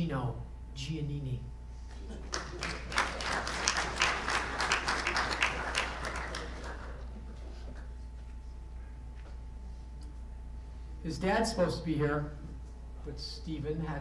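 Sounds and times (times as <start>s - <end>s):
audience applauding: 2.0s - 7.8s.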